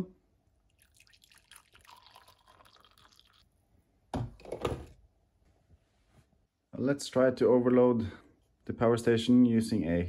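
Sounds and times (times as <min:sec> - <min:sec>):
coffee pouring into a mug: 0:00.7 - 0:03.5.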